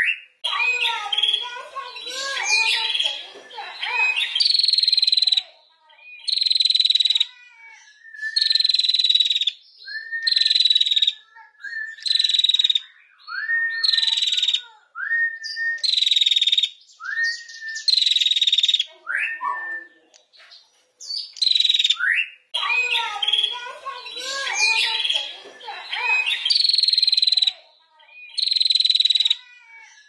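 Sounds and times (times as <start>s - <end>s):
bird rising chirps: 21.0s - 27.5s.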